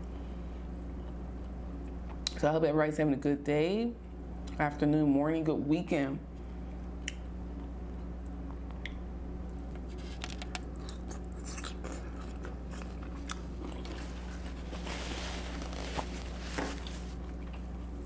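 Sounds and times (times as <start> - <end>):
low steady hum: 0.0 - 18.0
person chewing food: 9.7 - 18.0.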